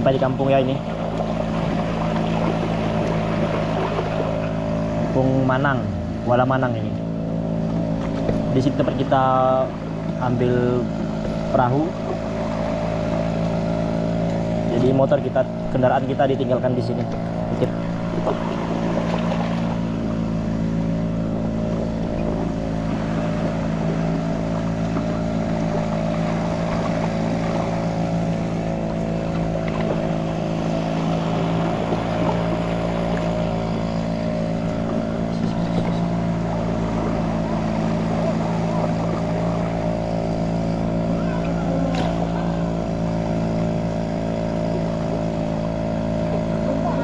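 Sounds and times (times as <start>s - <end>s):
boat engine running: 0.0s - 47.0s.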